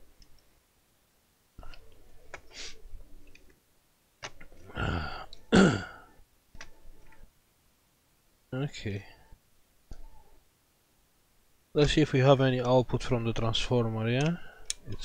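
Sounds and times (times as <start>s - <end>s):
man coughing: 5.5s - 6.1s.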